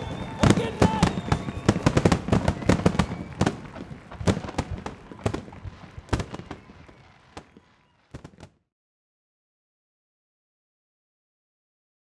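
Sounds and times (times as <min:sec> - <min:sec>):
fireworks bangs and crackles: 0:00.0 - 0:08.7.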